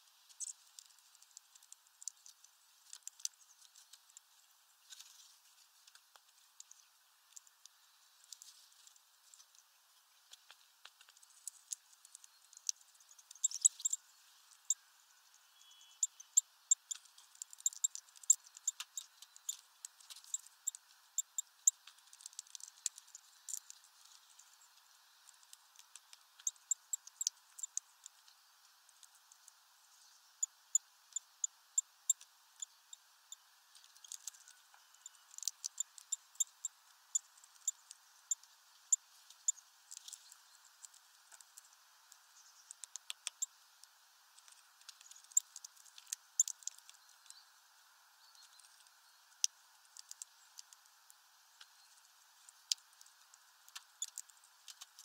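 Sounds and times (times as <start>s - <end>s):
bird cracking seeds: 0.2s - 14.7s, 16.7s - 29.6s, 37.2s - 47.4s, 51.6s - 55.0s.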